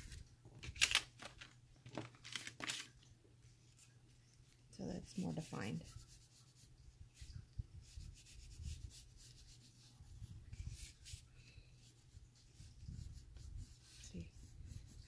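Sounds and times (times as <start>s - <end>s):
pencil scratching on paper: 7.8s - 11.2s, 11.8s - 15.0s.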